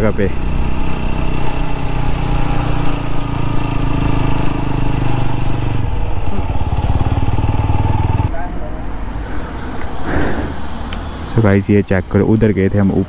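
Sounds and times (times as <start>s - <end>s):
motorcycle engine running: 0.0s - 8.3s.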